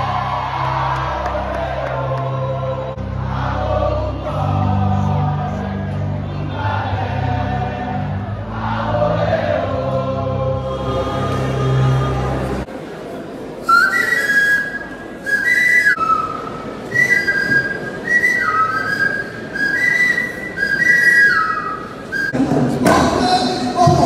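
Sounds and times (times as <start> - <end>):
high whistled tune: 13.6 - 22.4.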